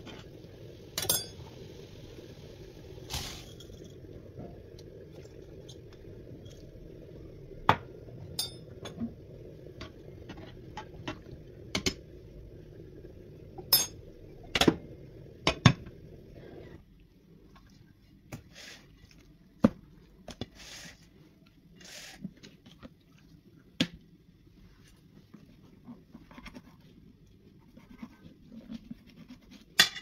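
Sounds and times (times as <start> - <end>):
low background hum: 0.0 - 30.0
utensils and dishes clinking: 1.0 - 1.4, 8.4 - 8.9.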